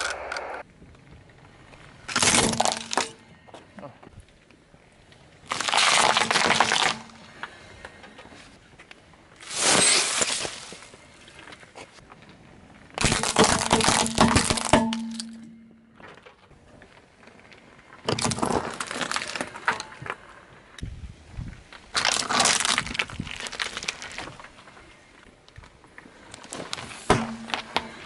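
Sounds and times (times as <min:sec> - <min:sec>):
tyre crushing plastic objects: 0:02.1 - 0:03.2, 0:05.5 - 0:07.3, 0:13.0 - 0:16.2, 0:18.0 - 0:20.0, 0:26.4 - 0:28.0.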